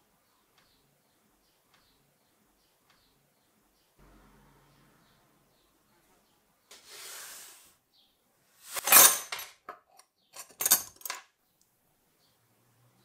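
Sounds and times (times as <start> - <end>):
metal parts clinking: 8.7 - 11.2.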